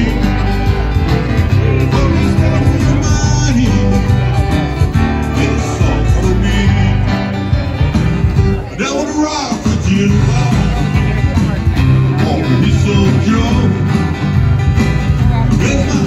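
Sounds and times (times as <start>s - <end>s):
person singing into microphone: 0.0s - 7.5s, 8.7s - 11.4s, 12.1s - 14.0s, 15.3s - 16.0s
acoustic guitar strumming: 0.0s - 16.0s.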